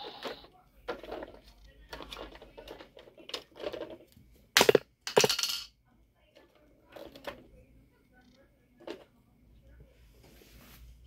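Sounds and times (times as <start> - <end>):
toy tractor clicking and knocking: 0.0 - 5.7.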